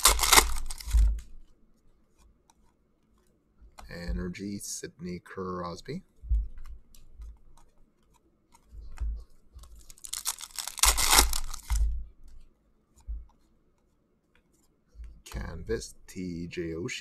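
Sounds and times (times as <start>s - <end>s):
foil wrapper tearing and crinkling: 0.0s - 1.1s, 9.8s - 11.8s
soft bumps of cards handled: 0.0s - 4.6s, 5.8s - 16.0s.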